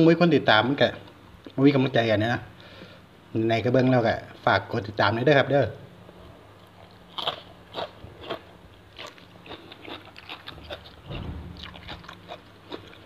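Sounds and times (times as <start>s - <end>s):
low hum from closed mouth: 5.8s - 13.0s
man chewing crisp food: 6.2s - 13.0s.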